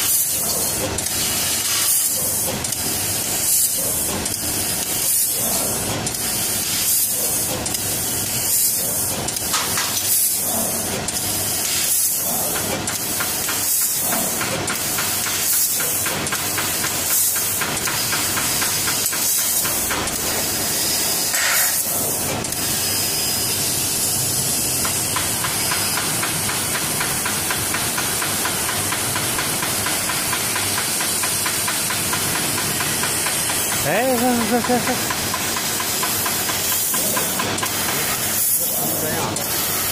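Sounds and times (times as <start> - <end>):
laser cutter gas hissing: 0.0 - 39.9.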